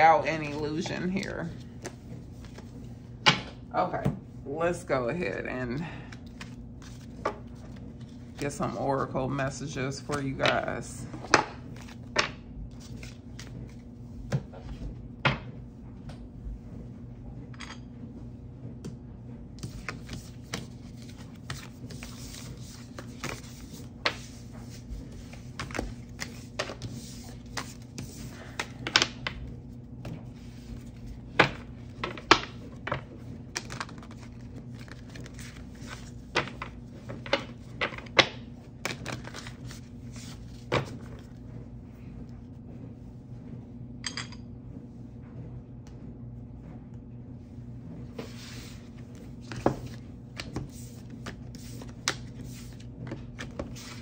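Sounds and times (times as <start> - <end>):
steady low hum: 0.0 - 54.0
cards being shuffled: 0.4 - 2.9, 6.1 - 8.8, 11.2 - 14.8, 19.6 - 29.4, 30.0 - 41.4, 48.2 - 54.0
cards riffling: 33.5 - 36.7.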